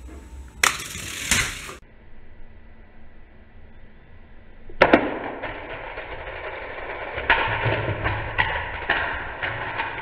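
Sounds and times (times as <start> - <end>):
toy cars rattling on plastic track: 0.6 - 1.8, 5.4 - 10.0.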